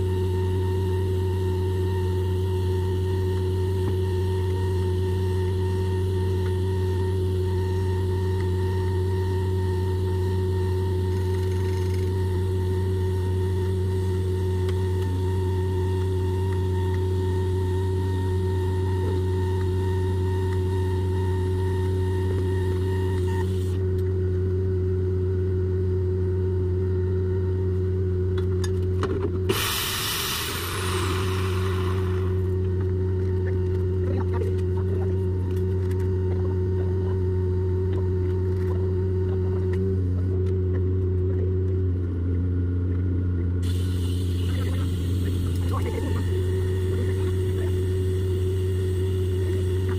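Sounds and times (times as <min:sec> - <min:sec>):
engine running: 0:00.0 - 0:49.9
welding arc hiss and whine: 0:00.0 - 0:49.9
short sharp hiss: 0:29.5 - 0:32.2.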